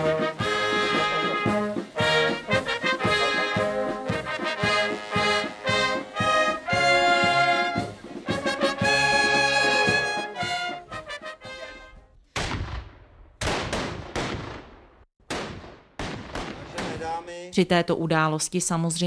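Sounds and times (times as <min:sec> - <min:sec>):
brass band playing: 0:00.0 - 0:12.1
black-powder gunshots: 0:12.3 - 0:17.3.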